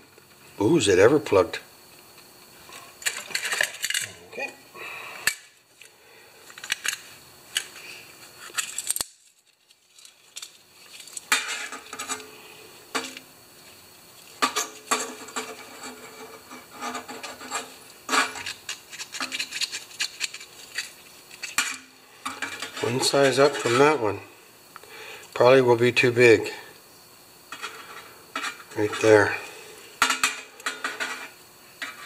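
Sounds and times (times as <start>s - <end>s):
thin metal wires clicking: 8.4s - 12.3s
rag rubbing in gloved hands: 15.6s - 21.5s.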